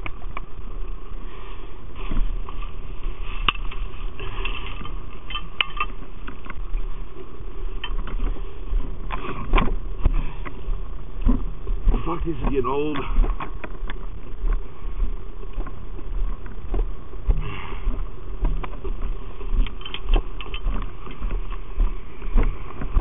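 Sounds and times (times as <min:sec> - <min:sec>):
footsteps crunching on snow: 0:00.0 - 0:05.2, 0:05.9 - 0:23.0
low rumble: 0:00.0 - 0:23.0
gear clinking and knocking: 0:03.5 - 0:06.7, 0:07.8 - 0:08.4, 0:18.4 - 0:21.7.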